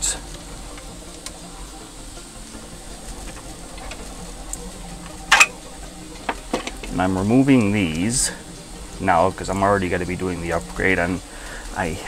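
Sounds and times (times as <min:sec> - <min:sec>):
steady low hiss: 0:00.0 - 0:12.0.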